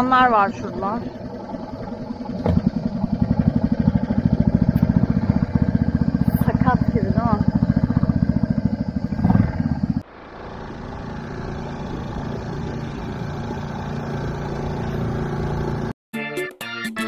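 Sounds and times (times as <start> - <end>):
outboard motor running: 0.0 - 15.9
music: 16.1 - 17.0.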